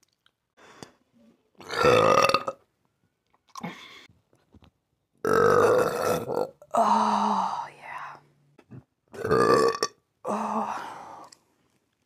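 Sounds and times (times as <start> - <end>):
woman burping: 1.6 - 2.6, 5.3 - 7.0, 8.7 - 10.5.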